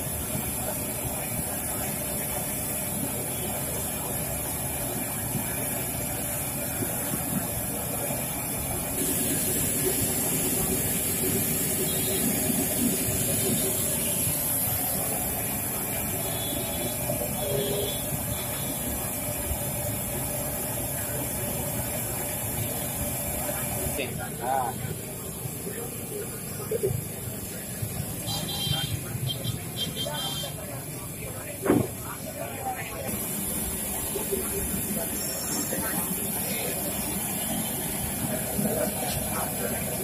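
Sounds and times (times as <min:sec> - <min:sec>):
food deep-frying in hot oil: 0:00.0 - 0:40.0
gas burner rumble: 0:00.0 - 0:40.0.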